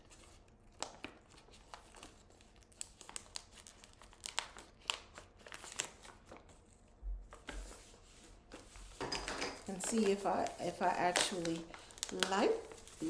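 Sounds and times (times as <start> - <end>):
plastic bag crinkling: 9.6 - 13.0.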